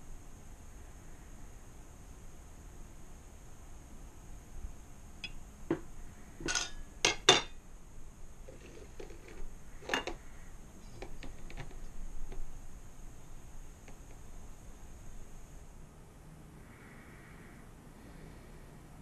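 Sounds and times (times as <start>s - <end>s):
glass jars and strainer clinking: 6.5s - 7.5s.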